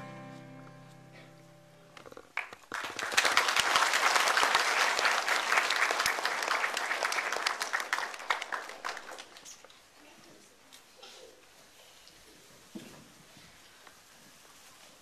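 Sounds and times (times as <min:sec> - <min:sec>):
audience applauding: 0:02.3 - 0:09.6.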